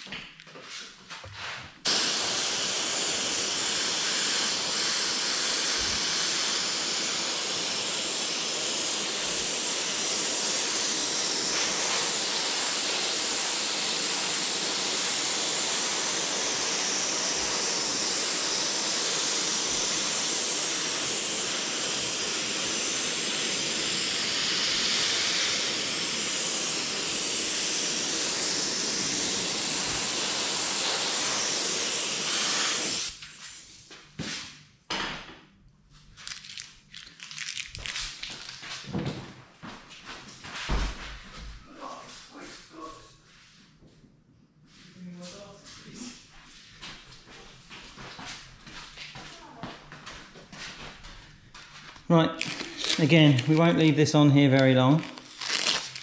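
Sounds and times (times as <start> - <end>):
airbrush hissing: 1.8 - 33.2, 52.4 - 56.0.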